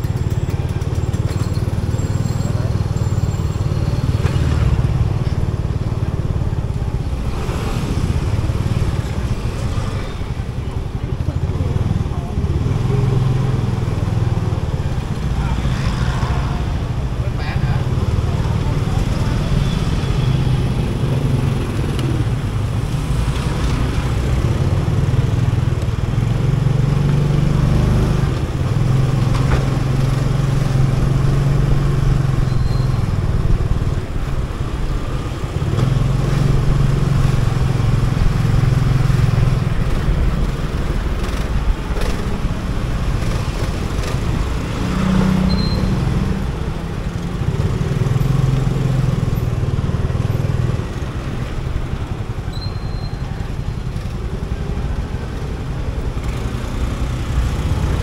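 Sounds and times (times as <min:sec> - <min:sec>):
street noise: 0:00.0 - 0:58.0.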